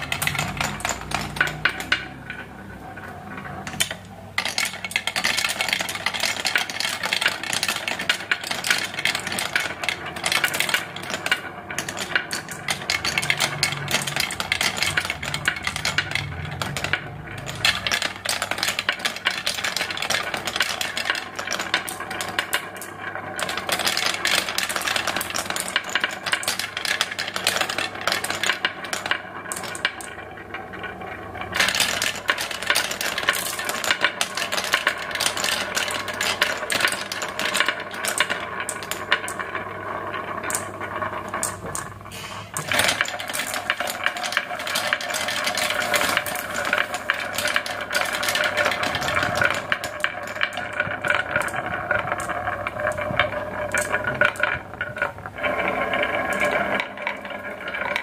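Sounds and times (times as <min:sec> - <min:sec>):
marbles rattling down track: 0:00.0 - 0:58.0.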